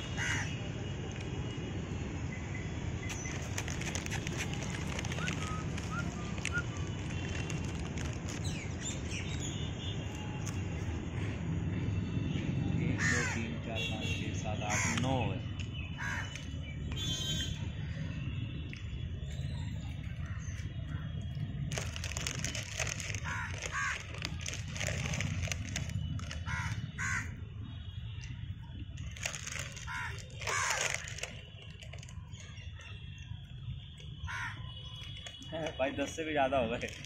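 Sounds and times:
crows cawing: 0:00.1 - 0:00.6, 0:13.0 - 0:13.5, 0:14.7 - 0:15.1, 0:16.0 - 0:16.4, 0:23.2 - 0:24.2, 0:26.4 - 0:27.4, 0:29.8 - 0:31.1, 0:34.3 - 0:34.7.

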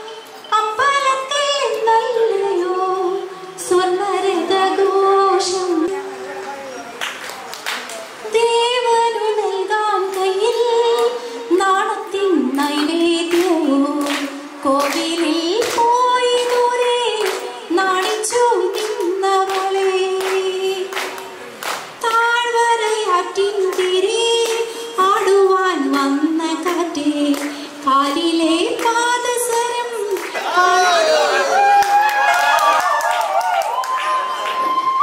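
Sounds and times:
woman singing unaccompanied: 0:00.0 - 0:06.0, 0:08.3 - 0:21.3, 0:22.0 - 0:30.2
breaths: 0:11.2 - 0:11.5, 0:24.7 - 0:25.0, 0:27.5 - 0:27.8.

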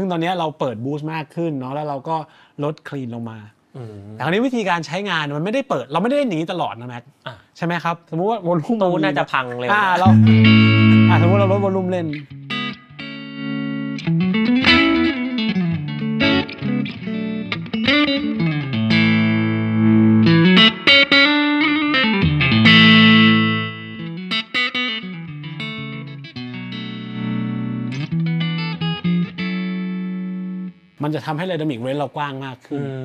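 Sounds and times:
clean electric guitar with bends: 0:10.0 - 0:30.9.

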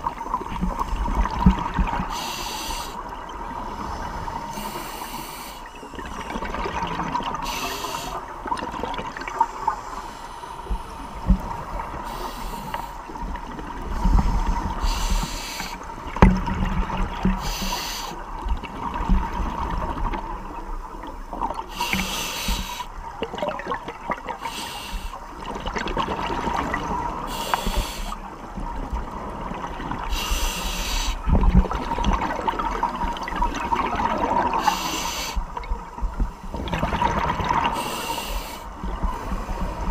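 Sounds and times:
exhaled bubbles rumbling: 0:00.0 - 0:02.1, 0:05.9 - 0:07.4, 0:15.9 - 0:17.4, 0:18.3 - 0:22.0, 0:23.0 - 0:24.4, 0:25.3 - 0:27.3, 0:31.2 - 0:34.7, 0:35.4 - 0:37.8
regulator air hiss: 0:02.1 - 0:03.1, 0:03.8 - 0:05.8, 0:07.4 - 0:08.2, 0:12.0 - 0:13.0, 0:14.0 - 0:15.9, 0:17.4 - 0:18.2, 0:21.7 - 0:22.9, 0:24.4 - 0:25.3, 0:27.3 - 0:28.2, 0:30.1 - 0:31.2, 0:34.6 - 0:35.5, 0:37.8 - 0:38.7.

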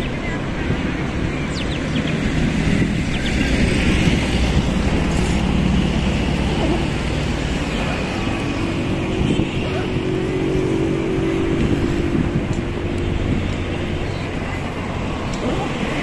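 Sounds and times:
road traffic cars passing: 0:00.0 - 0:16.0.

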